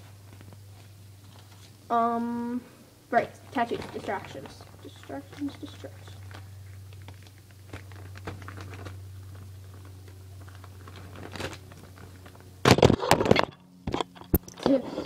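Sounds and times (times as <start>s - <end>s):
plastic bag crinkling and tearing: 3.5s - 13.3s.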